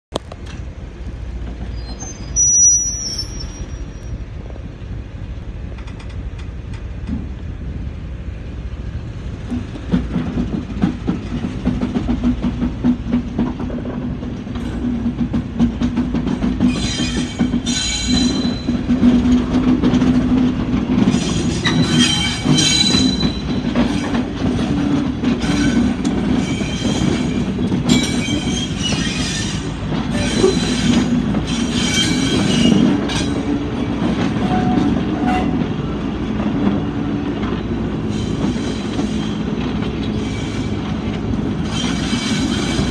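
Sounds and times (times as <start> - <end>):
diesel locomotive engine humming: 0.2 - 42.9
wheel flanges squealing: 1.6 - 4.5, 16.6 - 19.4, 21.0 - 35.6, 38.0 - 42.9.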